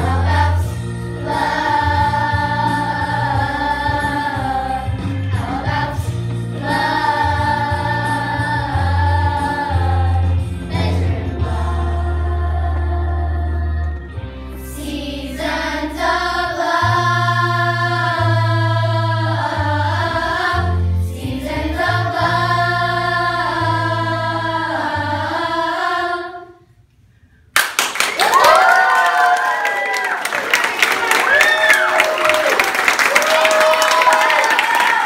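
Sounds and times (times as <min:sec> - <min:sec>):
musical accompaniment with bass line: 0:00.0 - 0:26.5
children's choir singing: 0:00.0 - 0:26.7
audience applause and cheering: 0:27.6 - 0:35.0.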